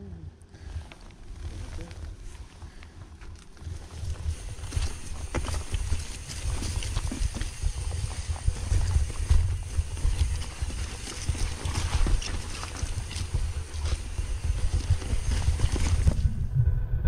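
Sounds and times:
bike clattering over rough trail: 0:00.8 - 0:16.2
wind rumble on microphone: 0:04.0 - 0:17.0.

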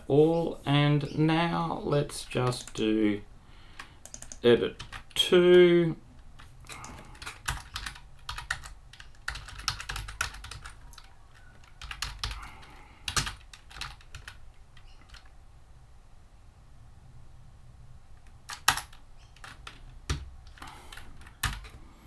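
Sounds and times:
keyboard typing: 0:03.8 - 0:05.2, 0:06.2 - 0:15.3, 0:18.2 - 0:21.8.

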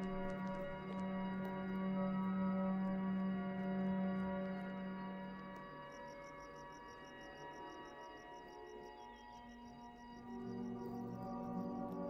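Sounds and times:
ambient drone music: 0:00.2 - 0:12.0.

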